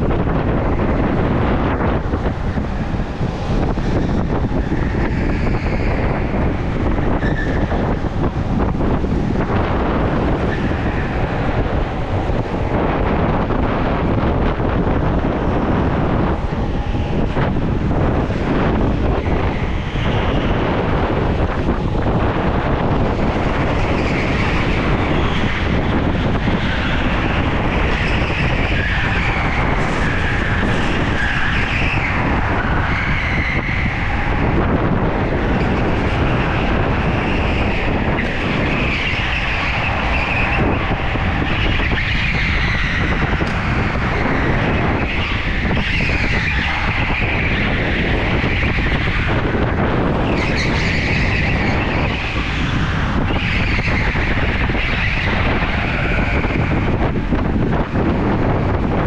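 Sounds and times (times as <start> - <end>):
wind noise: 0.0 - 59.0
go-kart motor: 1.0 - 58.3
tyres squealing: 2.3 - 12.8, 23.0 - 57.0.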